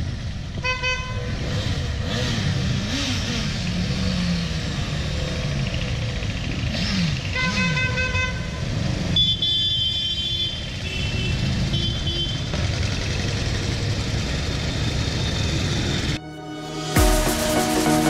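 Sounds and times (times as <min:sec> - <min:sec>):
motorcycles riding past: 0:01.2 - 0:07.4.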